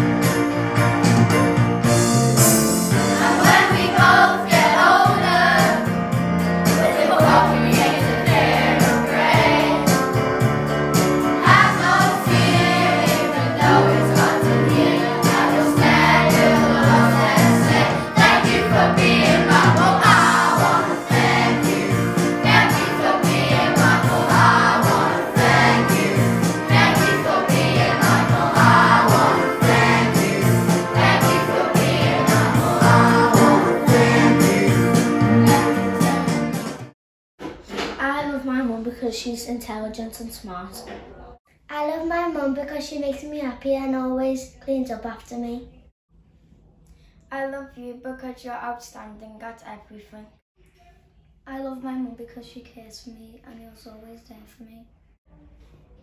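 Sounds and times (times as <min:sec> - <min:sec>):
song with sung vocals: 0:03.0 - 0:05.8, 0:11.4 - 0:36.8.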